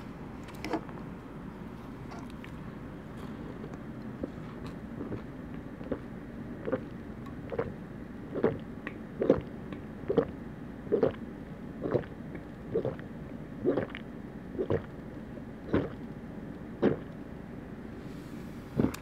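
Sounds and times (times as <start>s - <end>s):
person gulping drink: 4.2s - 9.5s, 10.1s - 10.3s, 10.9s - 11.2s, 11.8s - 13.0s, 13.6s - 14.9s, 15.7s - 16.0s, 16.8s - 17.1s, 18.8s - 19.0s.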